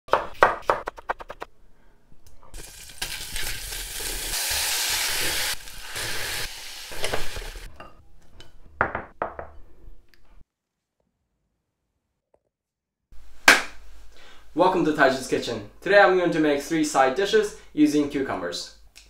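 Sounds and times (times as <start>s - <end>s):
knife chopping on wooden board: 0.1s - 1.2s
food sizzling in a saucepan: 2.5s - 7.7s.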